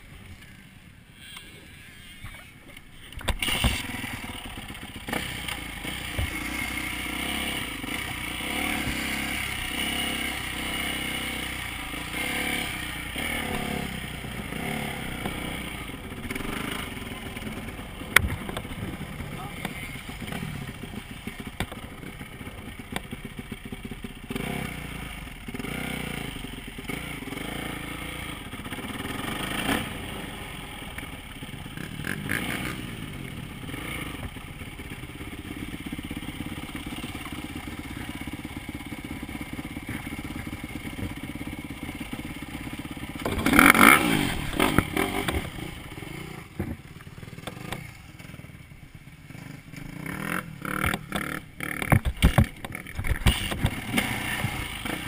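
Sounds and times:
tyres on gravel: 0:01.4 - 0:09.3
dirt bike engine revving: 0:03.1 - 0:48.6, 0:49.2 - 0:55.0.

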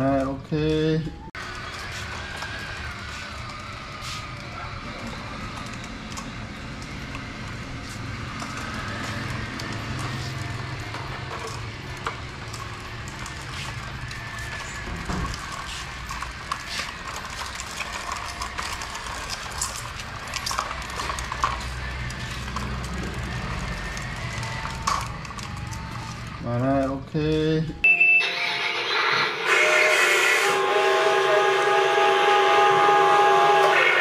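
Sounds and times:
plastic toy wheels rattling on floor: 0:01.4 - 0:27.0.

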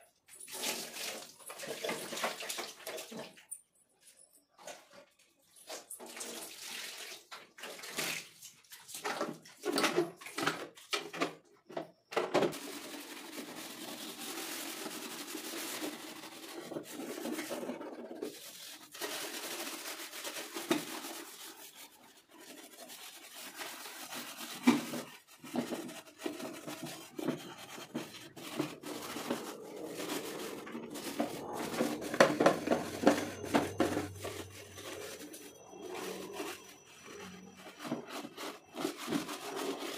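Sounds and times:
water splashing and pouring: 0:00.3 - 0:03.4, 0:05.6 - 0:10.9
scrub pad scraping plastic: 0:12.5 - 0:39.9.

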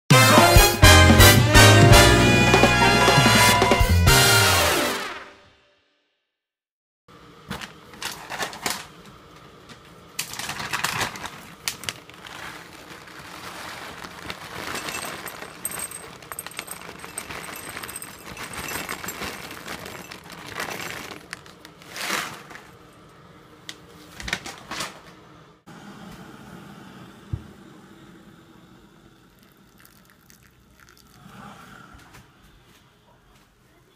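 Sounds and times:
kibble clattering into bowl: 0:14.4 - 0:21.6.

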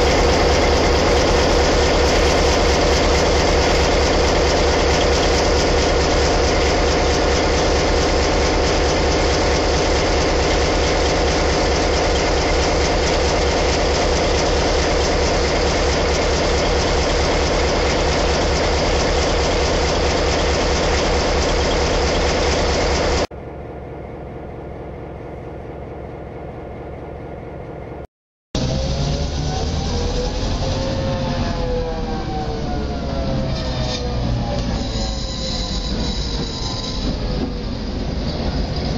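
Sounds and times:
locomotive diesel engine running: 0:00.0 - 0:28.0.

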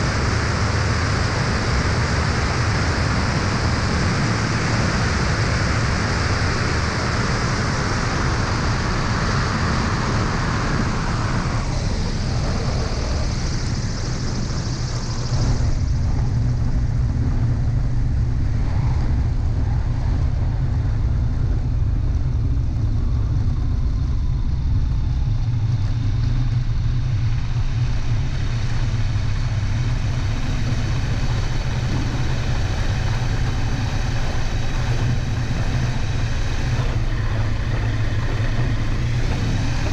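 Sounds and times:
aircraft engine and propeller drone: 0:00.0 - 0:39.9
wind rush: 0:00.0 - 0:39.9.

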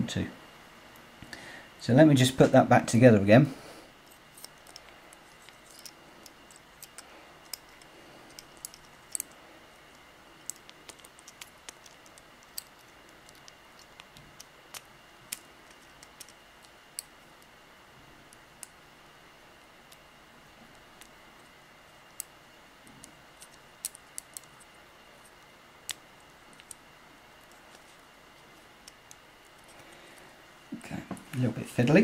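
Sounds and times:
small parts clicking: 0:04.0 - 0:17.5, 0:18.3 - 0:18.8, 0:20.7 - 0:26.8.

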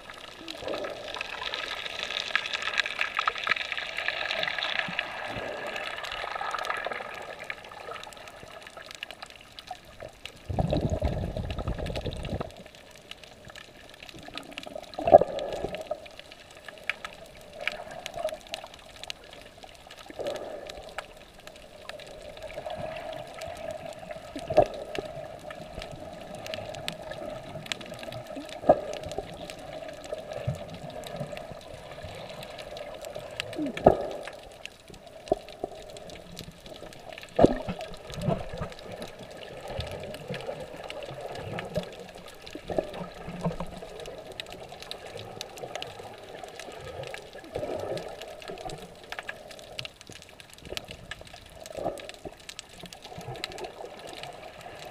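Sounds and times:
low underwater rush: 0:00.0 - 0:54.9
underwater sloshing and gurgling: 0:00.0 - 0:54.9.

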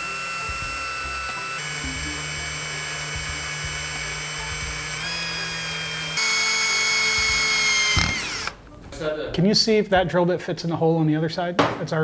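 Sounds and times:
cordless drill whining: 0:00.0 - 0:08.6.

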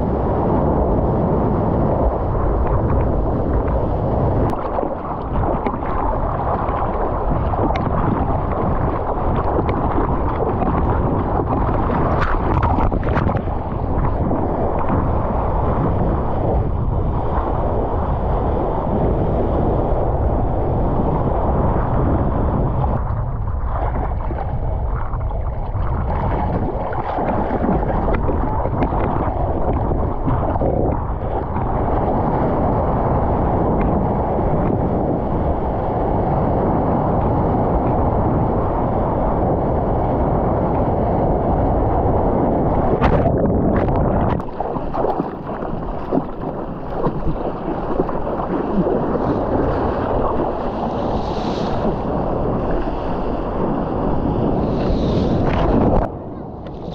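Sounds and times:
rush of wind and water: 0:00.0 - 0:56.9
water splashes: 0:02.0 - 0:18.3, 0:23.0 - 0:32.9, 0:42.7 - 0:56.9.

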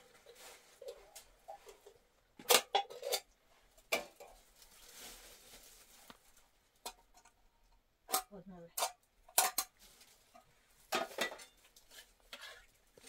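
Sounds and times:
soft rustle: 0:00.0 - 0:02.0, 0:03.4 - 0:06.7, 0:09.8 - 0:10.9
knocks and clinks of objects: 0:00.0 - 0:04.5, 0:06.8 - 0:13.0.

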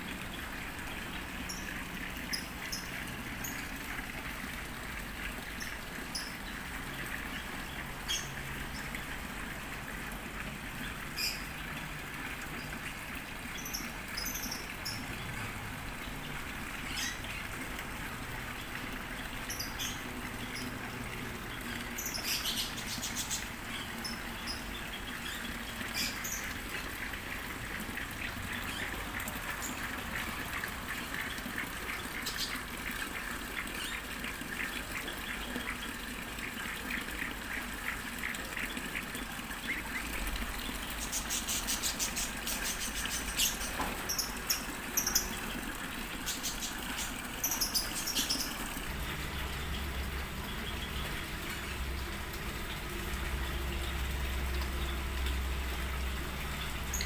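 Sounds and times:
birds chirping: 0:00.1 - 0:04.5, 0:05.2 - 0:09.6, 0:10.7 - 0:57.0
rapid bird trills: 0:27.9 - 0:55.6
repeated bird notes: 0:33.6 - 0:57.0.

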